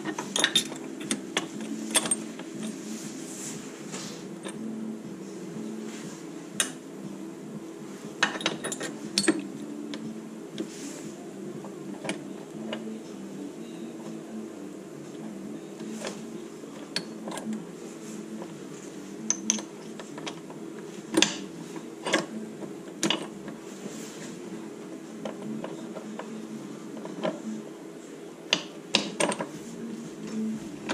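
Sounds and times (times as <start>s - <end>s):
metal parts clinking and tapping: 0.0s - 2.8s, 8.2s - 9.6s, 19.3s - 20.5s, 28.5s - 29.6s
steady low hum: 0.0s - 30.9s.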